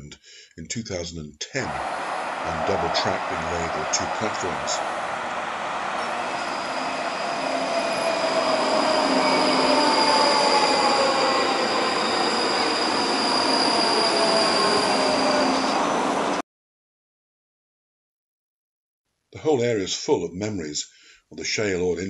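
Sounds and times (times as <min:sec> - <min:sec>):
electric train rumble: 0:01.6 - 0:16.4
high-pitched squeal: 0:01.6 - 0:16.4
falling whines of carriages: 0:01.7 - 0:16.4.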